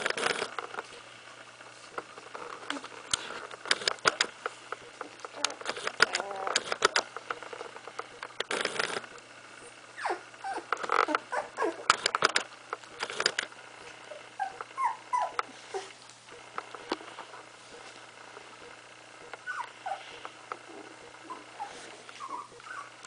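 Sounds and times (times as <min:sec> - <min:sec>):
puppy whimpering: 0:05.1 - 0:06.8, 0:10.0 - 0:12.0, 0:13.8 - 0:16.0, 0:19.3 - 0:23.0.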